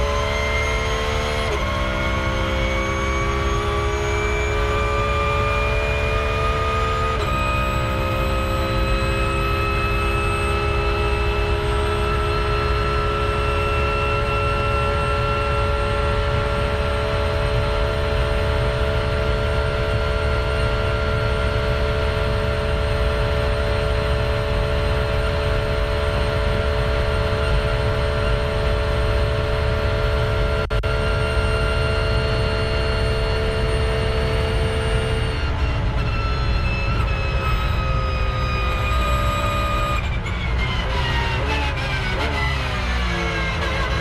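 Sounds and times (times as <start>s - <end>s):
race car engine at high revs: 0.0s - 44.0s.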